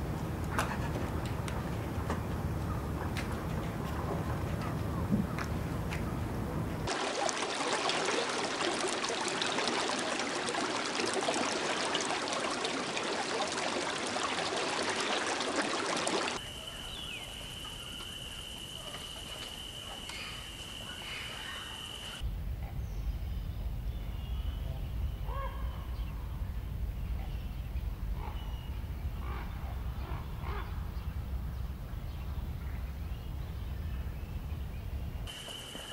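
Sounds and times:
running water hiss: 6.9s - 22.2s, 35.3s - 35.9s
bird chirps: 16.4s - 22.2s.

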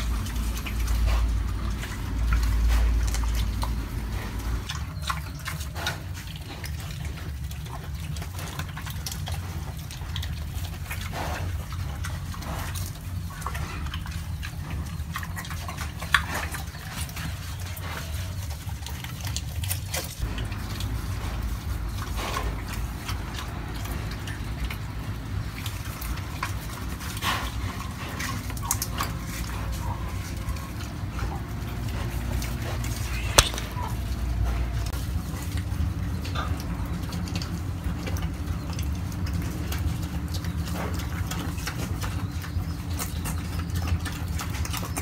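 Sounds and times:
pig grunting: 0.0s - 34.8s
pig munching and crunching: 0.0s - 45.0s
steady low rumble: 20.2s - 40.0s.

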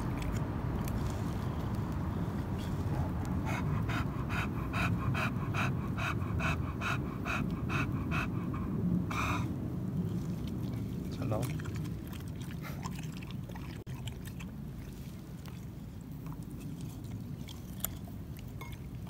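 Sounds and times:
dog panting: 2.1s - 13.1s
dog huffing: 3.3s - 9.5s.

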